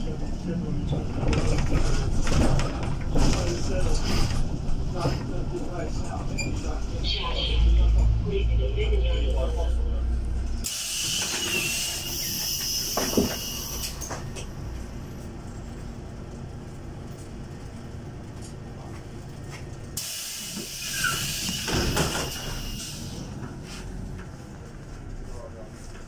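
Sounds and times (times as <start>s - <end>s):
bus doors air hiss: 10.6s - 14.2s, 20.0s - 23.9s
bus door clunk: 20.0s - 23.1s.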